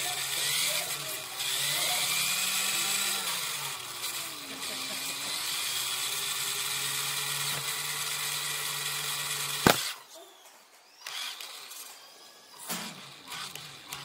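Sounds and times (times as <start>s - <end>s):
electric motor whirring: 0.0s - 10.1s, 10.9s - 14.0s
sharp knock: 9.6s - 9.9s.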